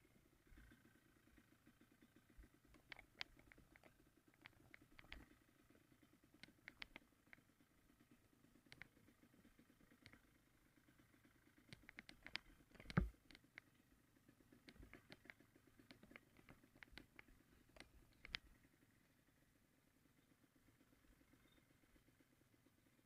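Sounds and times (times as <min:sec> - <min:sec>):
faint engine pulsing hum: 0:00.0 - 0:23.0
sharp clicks: 0:02.7 - 0:05.4, 0:06.4 - 0:07.4, 0:08.7 - 0:09.0, 0:09.9 - 0:10.3, 0:11.7 - 0:13.8, 0:14.6 - 0:18.6.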